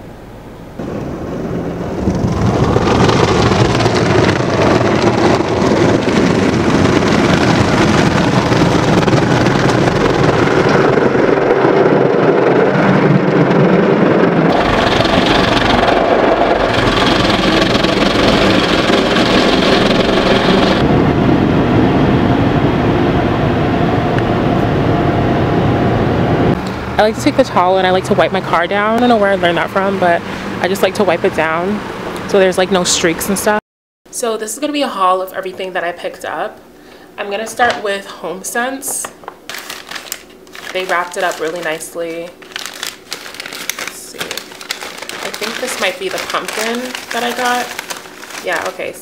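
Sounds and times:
air dryer blowers: 0:14.4 - 0:20.9, 0:30.0 - 0:30.6.

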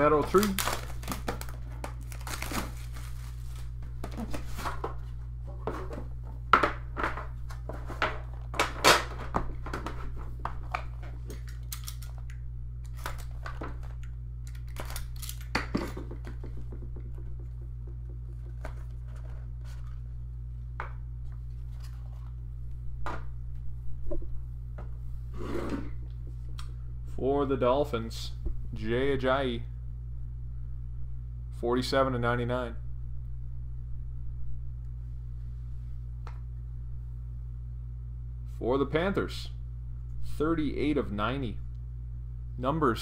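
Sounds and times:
plastic wrap tearing and crinkling: 0:00.0 - 0:03.8, 0:12.9 - 0:15.5
steady low hum: 0:00.0 - 0:43.0.

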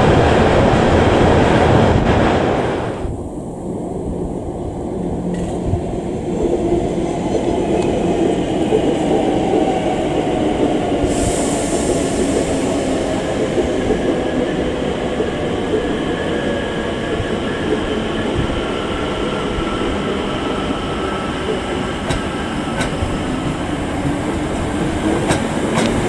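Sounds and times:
train wheels rumbling on rails: 0:05.0 - 0:26.0
hiss: 0:11.0 - 0:14.0.

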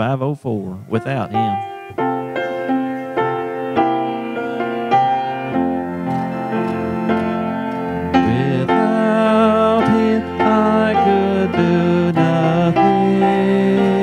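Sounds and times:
acoustic guitar chords: 0:00.8 - 0:14.0
piano chords: 0:00.8 - 0:14.0
person singing: 0:00.9 - 0:01.7, 0:08.1 - 0:14.0.

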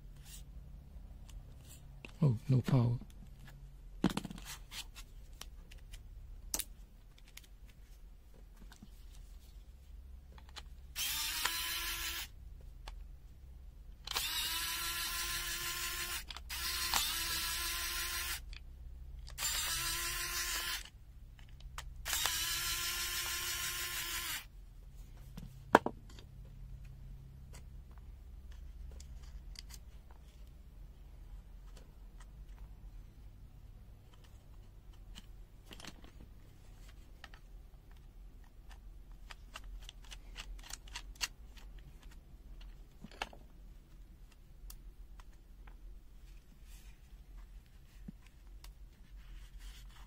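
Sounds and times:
electric screwdriver whining: 0:11.0 - 0:12.3, 0:14.1 - 0:18.5, 0:19.3 - 0:20.9, 0:22.0 - 0:24.5.

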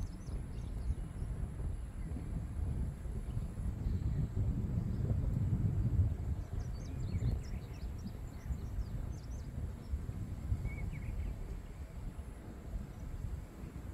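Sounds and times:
small birds chirping: 0:00.0 - 0:02.4, 0:06.1 - 0:13.9
wind buffeting microphone: 0:00.0 - 0:13.9.

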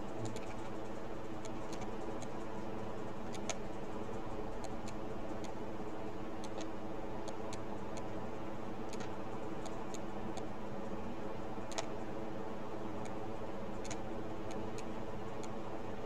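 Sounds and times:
electrical hum: 0:00.0 - 0:16.0
computer mouse clicking: 0:00.1 - 0:02.5, 0:03.2 - 0:08.1, 0:08.9 - 0:10.5, 0:11.7 - 0:12.0, 0:13.0 - 0:13.2, 0:13.8 - 0:15.6.

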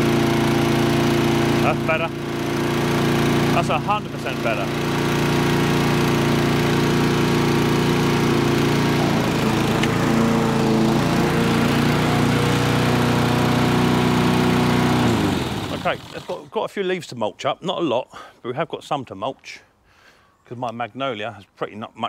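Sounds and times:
lawn mower running: 0:00.0 - 0:16.6.

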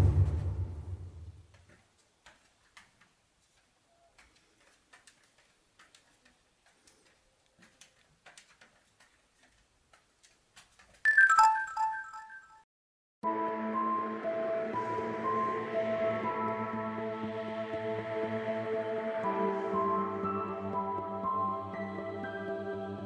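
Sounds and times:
bell-like chime: 0:11.1 - 0:12.6.

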